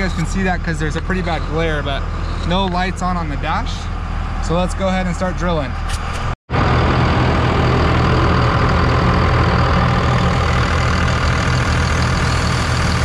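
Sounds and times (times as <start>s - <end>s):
diesel engine idling: 0.0s - 5.7s, 6.6s - 13.0s.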